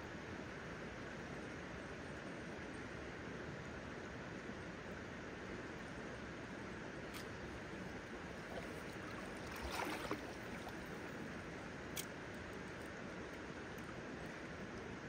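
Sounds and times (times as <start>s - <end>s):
shallow river flowing: 0.2s - 15.0s
footstep splashing in water: 8.3s - 11.3s.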